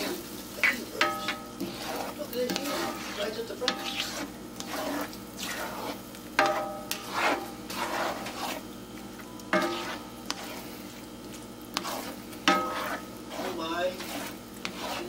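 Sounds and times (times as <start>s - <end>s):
light frying sizzle: 0.0s - 15.0s
spatula scraping skillet: 0.0s - 15.0s
spatula clacking against pan: 0.6s - 4.8s, 6.4s - 8.4s, 11.8s - 15.0s.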